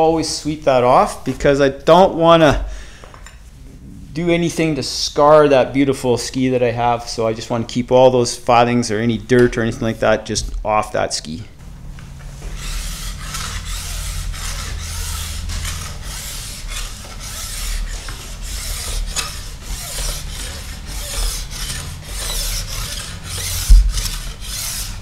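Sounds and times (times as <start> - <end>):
file rasping on ski edge: 12.4 - 25.0
sharp thump: 23.6 - 24.4.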